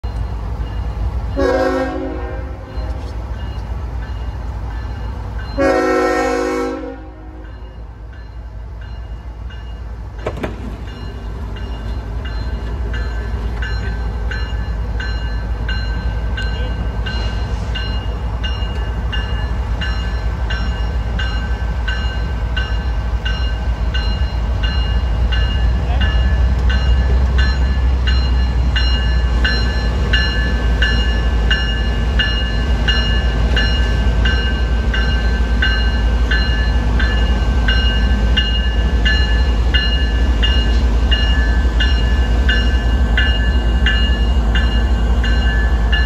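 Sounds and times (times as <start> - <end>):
crossing bell dinging: 0.0 - 46.0
train rumble: 0.0 - 46.0
locomotive air horn blasts: 1.4 - 2.7, 5.6 - 7.4.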